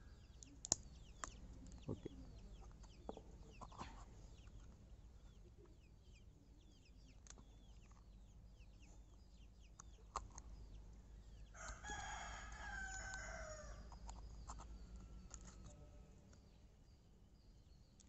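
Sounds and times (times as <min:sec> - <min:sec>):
rooster crowing: 0:11.6 - 0:13.9.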